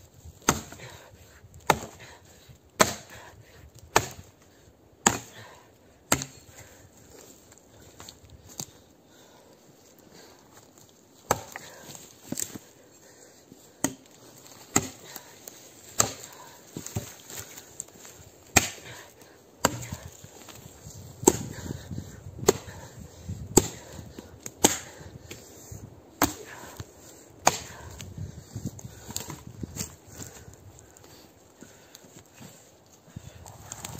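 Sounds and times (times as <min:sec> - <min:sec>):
axe chopping wood: 0:00.4 - 0:01.0, 0:01.6 - 0:02.1, 0:02.8 - 0:03.3, 0:03.9 - 0:04.3, 0:05.0 - 0:05.5, 0:06.1 - 0:06.6, 0:11.3 - 0:12.6, 0:13.8 - 0:15.2, 0:15.9 - 0:17.4, 0:18.5 - 0:20.2, 0:21.2 - 0:22.9, 0:23.5 - 0:25.4, 0:26.2 - 0:26.8, 0:27.4 - 0:28.0.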